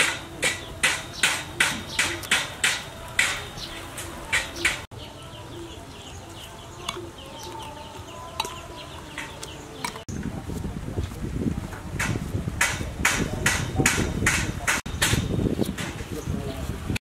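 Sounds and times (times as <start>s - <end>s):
birds chirping: 0.0s - 10.5s, 13.2s - 17.0s.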